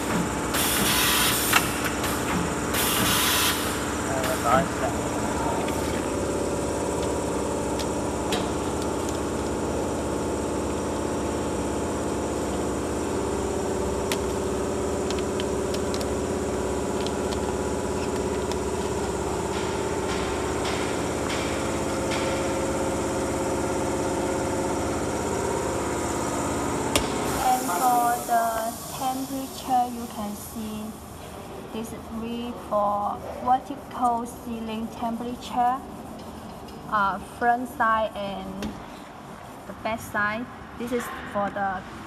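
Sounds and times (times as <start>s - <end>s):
packing machine humming: 0.0s - 31.7s.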